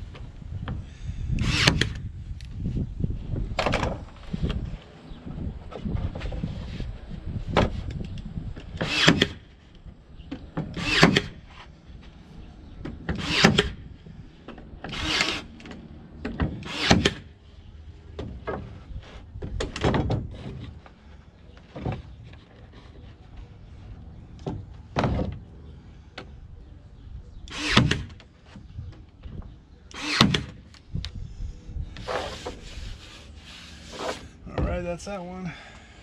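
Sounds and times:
nail gun snapping: 1.4s - 2.0s, 27.5s - 28.2s, 29.9s - 30.6s.

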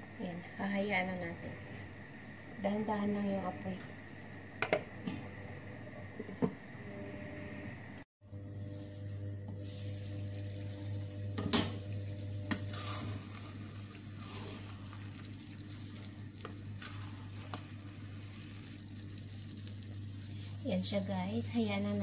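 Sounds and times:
sizzle from pot: 8.4s - 22.0s
spoon stirring rice in pot: 11.4s - 20.1s.

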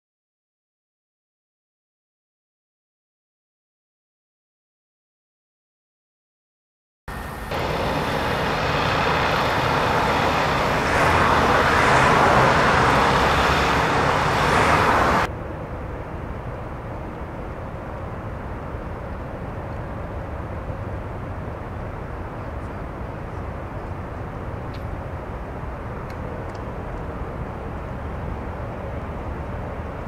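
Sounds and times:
loud steady outdoor noise: 7.1s - 30.0s
quiet steady background noise: 15.2s - 30.0s.

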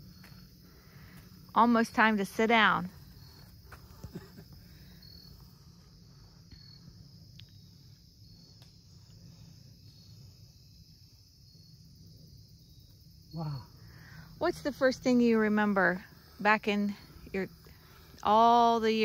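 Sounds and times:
insects chirring: 0.0s - 19.0s
short high insect chirp: 3.0s - 14.4s.

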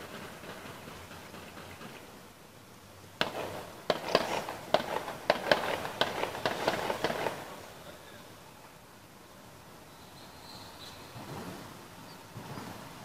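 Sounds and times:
gunshots echoing: 3.2s - 7.8s.

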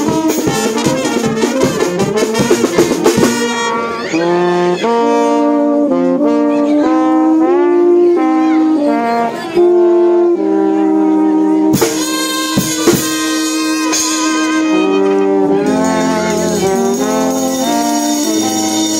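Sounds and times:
drums: 0.0s - 3.9s, 11.6s - 18.9s
brass band playing: 0.0s - 18.9s.

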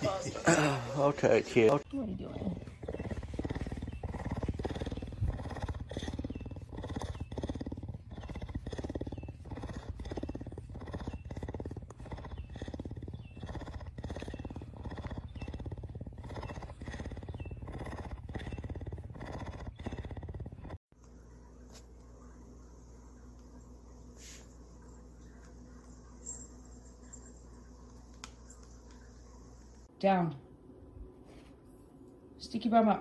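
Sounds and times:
cougar purring: 1.6s - 20.9s.

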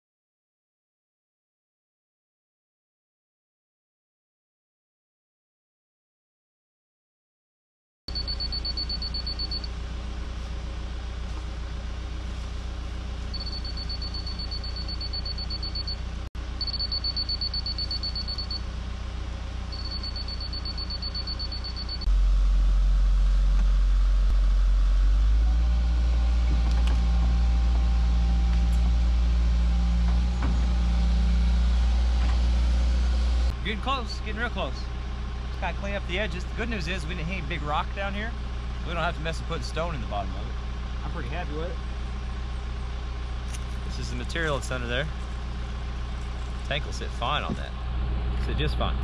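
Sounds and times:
high-pitched pulsed alarm beeping: 8.1s - 9.7s, 13.3s - 16.0s, 16.6s - 18.6s, 19.7s - 22.1s
excavator diesel engine running: 8.1s - 49.0s.

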